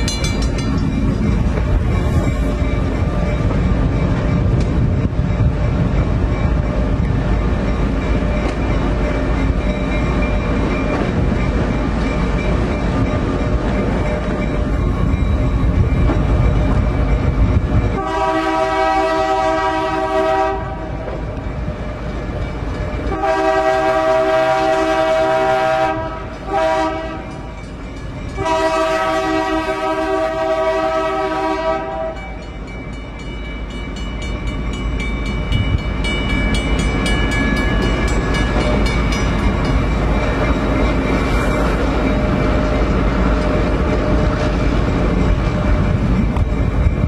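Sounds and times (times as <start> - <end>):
locomotive engine and wheels rumbling: 0.0 - 47.0
locomotive air horn blasts: 18.0 - 21.0, 23.1 - 27.3, 28.4 - 32.3.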